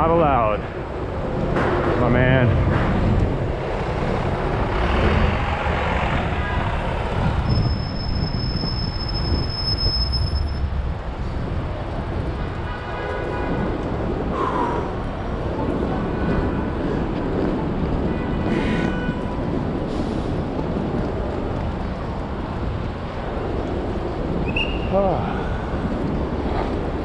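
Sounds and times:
traffic rumble and road noise: 0:00.0 - 0:27.0
high steady squeal: 0:07.4 - 0:10.6.

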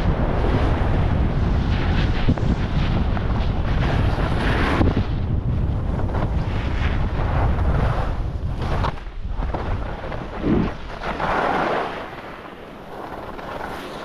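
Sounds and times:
wind buffeting microphone: 0:00.0 - 0:13.8
ski edges scraping snow: 0:03.7 - 0:05.1, 0:06.0 - 0:14.0.

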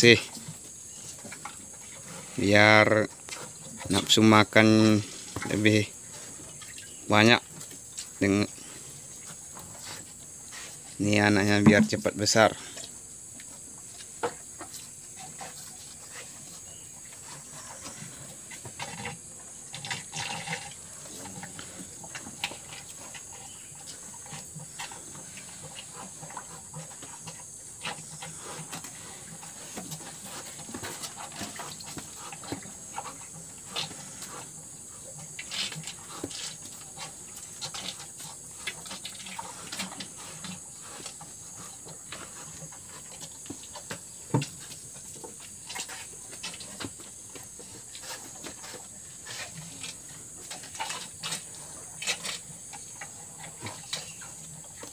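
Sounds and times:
cattle slurping water: 0:00.1 - 0:54.9
steady high hiss: 0:03.9 - 0:15.0
knocks against plastic bucket: 0:11.6 - 0:12.2.

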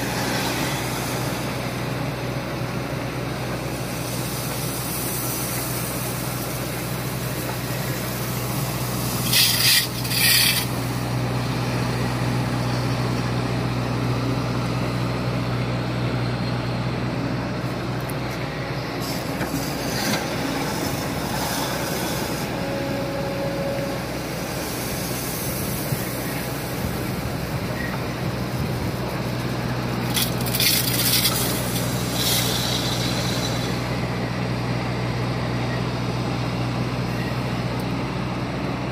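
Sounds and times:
excavator diesel engine running: 0:00.0 - 0:38.9
gravel pouring into truck: 0:03.9 - 0:11.0, 0:29.2 - 0:34.0.

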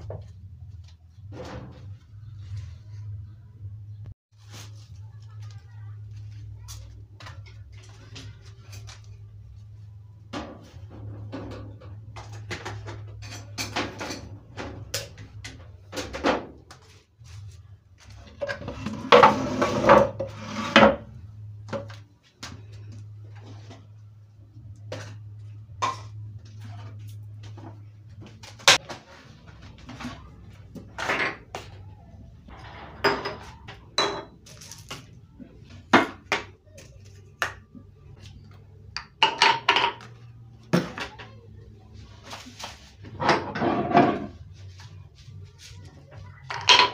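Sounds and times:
dishes and utensils clinking: 0:10.4 - 0:16.5, 0:32.5 - 0:35.1, 0:39.0 - 0:41.3, 0:46.2 - 0:46.9.

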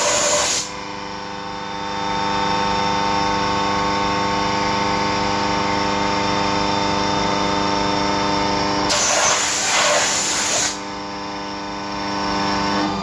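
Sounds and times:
loud hiss: 0:00.0 - 0:00.7, 0:08.9 - 0:10.8.

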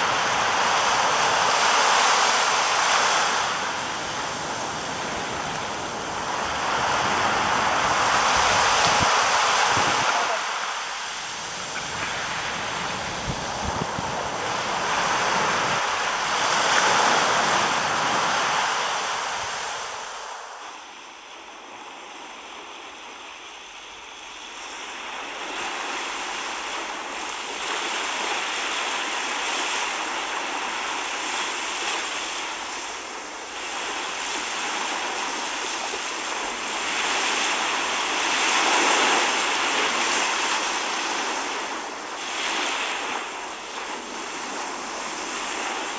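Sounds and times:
sea waves breaking on shore: 0:00.0 - 0:45.9
wind blowing: 0:00.0 - 0:45.9.

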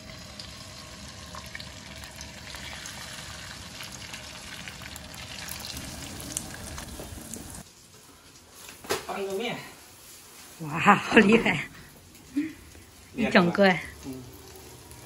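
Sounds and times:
egg sizzling in hot oil: 0:00.0 - 0:07.7, 0:12.8 - 0:15.0.

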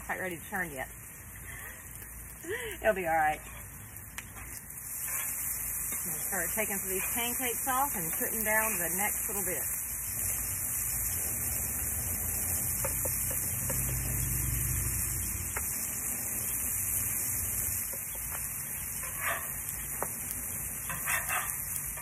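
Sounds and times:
pancakes sizzling on griddle: 0:00.0 - 0:22.0
metal spatula scraping steel: 0:04.4 - 0:09.4, 0:19.0 - 0:19.7, 0:20.8 - 0:22.0.

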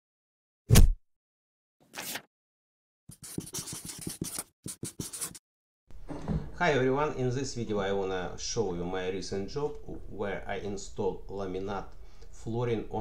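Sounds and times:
marker writing on paper: 0:03.1 - 0:05.4.

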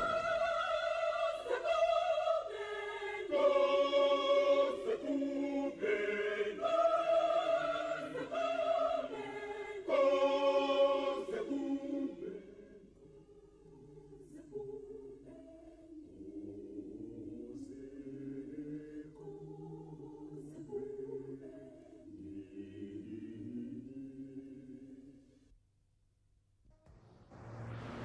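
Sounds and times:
choir singing held notes: 0:00.0 - 0:25.1.

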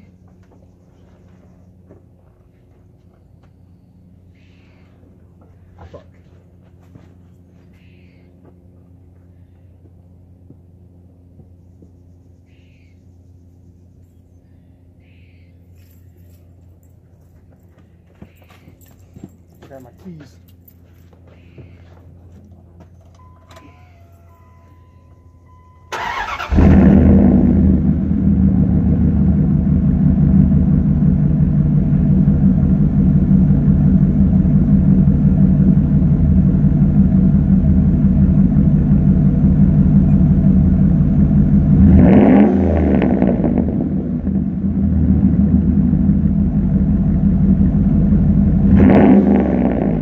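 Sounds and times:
loud engine idling and revving: 0:25.4 - 0:50.0
engine starter cranking: 0:25.9 - 0:27.0.

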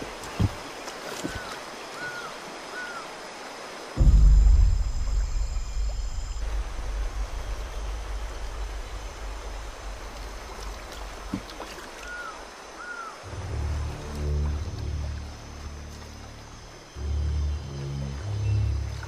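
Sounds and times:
river flowing: 0:00.0 - 0:19.0
high steady ringing tone: 0:04.0 - 0:10.0
deep boom: 0:04.0 - 0:11.6
low drone: 0:04.0 - 0:12.0, 0:13.2 - 0:19.0.

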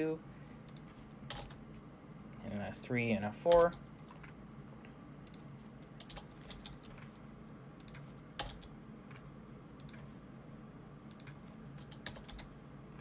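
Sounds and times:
faint low hum: 0:00.0 - 0:13.0
computer keyboard keys tapping: 0:00.7 - 0:01.6, 0:03.5 - 0:04.4, 0:05.3 - 0:07.2, 0:07.8 - 0:10.1, 0:11.1 - 0:13.0.

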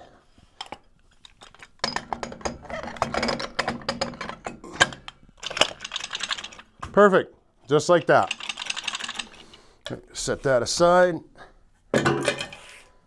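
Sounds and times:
metal gears clicking and rattling: 0:00.6 - 0:06.8, 0:07.7 - 0:09.5.

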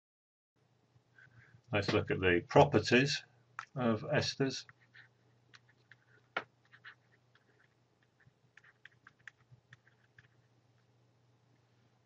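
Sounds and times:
low steady hum: 0:00.6 - 0:12.0
stylus scratching on drawing tablet: 0:04.6 - 0:10.9.

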